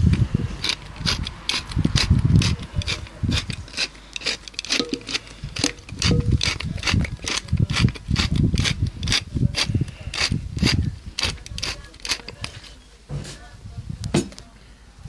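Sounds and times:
pepper mill grinding clicks: 0:00.6 - 0:10.3.

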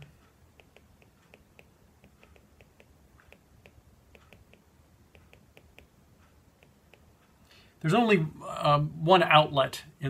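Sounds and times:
stylus tapping on glass screen: 0:00.0 - 0:07.3.

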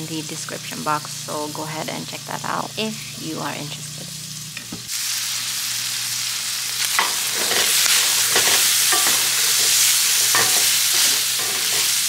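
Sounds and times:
food sizzling in metal pan: 0:00.0 - 0:12.0
wooden spoon scraping and knocking: 0:07.0 - 0:11.9.

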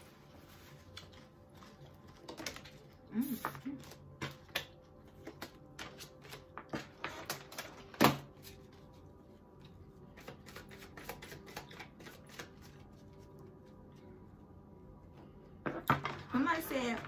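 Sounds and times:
cards being shuffled: 0:10.1 - 0:13.3.

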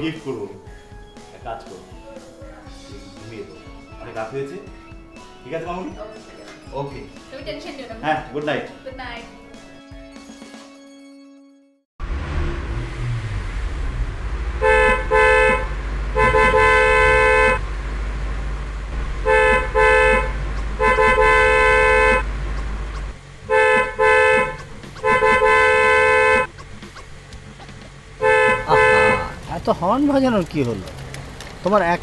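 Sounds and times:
low steady rumble: 0:12.0 - 0:32.0
car horn honking: 0:14.6 - 0:17.7, 0:19.2 - 0:22.4, 0:23.4 - 0:26.5, 0:28.2 - 0:29.4.

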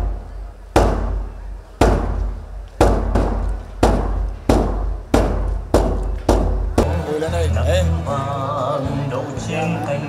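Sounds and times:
large drum strikes ringing deep: 0:00.0 - 0:06.9.

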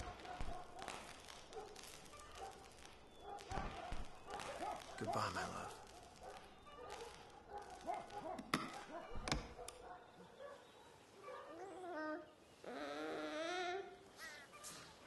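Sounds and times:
baby fussing and crying: 0:11.6 - 0:14.4.

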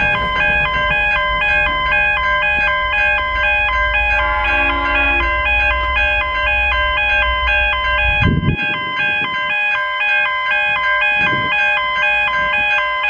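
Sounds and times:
low rumble: 0:00.0 - 0:09.3
synth tune with square notes: 0:00.0 - 0:13.0.

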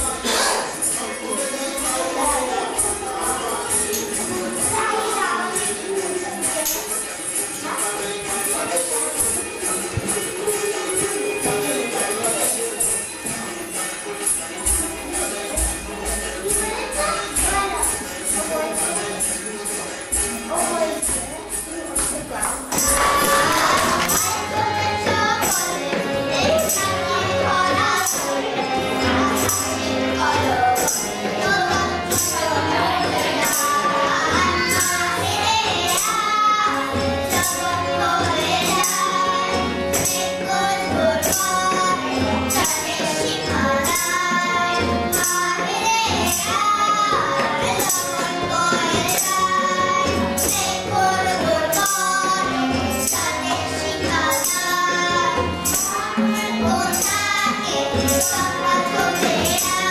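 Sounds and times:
harmonium: 0:00.0 - 0:59.9
jingling hand percussion: 0:00.0 - 0:59.9
woman and girls singing: 0:20.7 - 0:59.9
tabla: 0:22.7 - 0:59.9.

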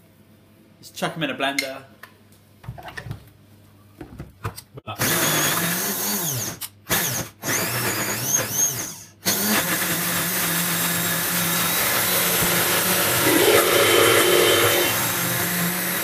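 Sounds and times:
blender motor running: 0:07.5 - 0:16.0.

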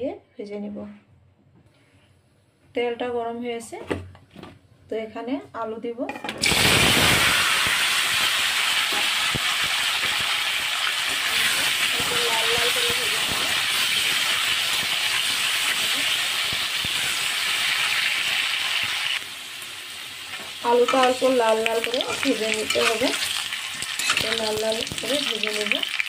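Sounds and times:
potatoes frying in oil: 0:06.4 - 0:26.0.

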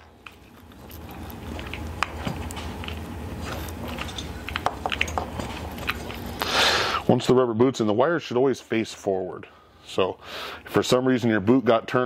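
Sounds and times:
rubber and wire crackling: 0:00.0 - 0:07.0.

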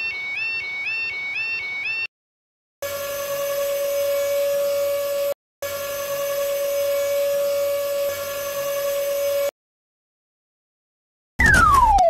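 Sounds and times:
cartoon robotic motor whir: 0:02.8 - 0:09.5.

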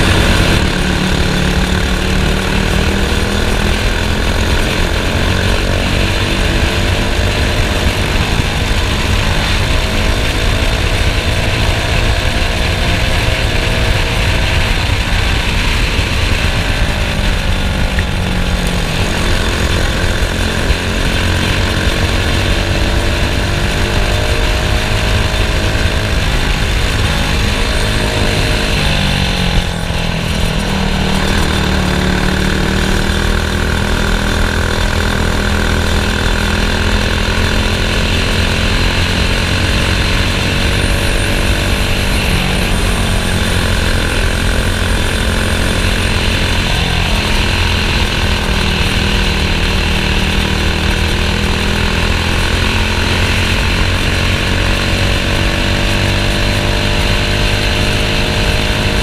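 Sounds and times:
kart engine running hard: 0:00.0 - 0:59.0.

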